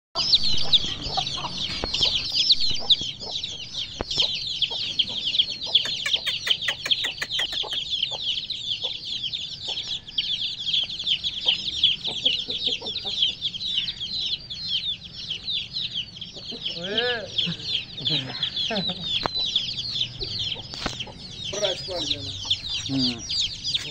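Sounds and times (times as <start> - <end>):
chicks peeping: 0.2 - 23.9.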